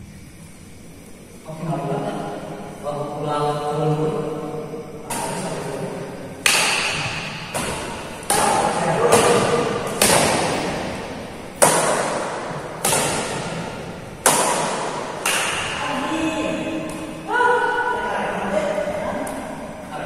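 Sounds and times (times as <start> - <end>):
racket hitting shuttlecock: 5.1 - 5.7, 6.4 - 15.9, 16.7 - 17.3.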